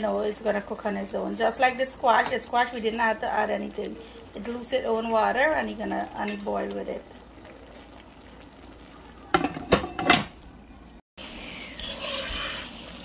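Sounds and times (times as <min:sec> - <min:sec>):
light sizzle: 0:00.0 - 0:13.0
metal clanks on cooking pot: 0:09.3 - 0:10.4.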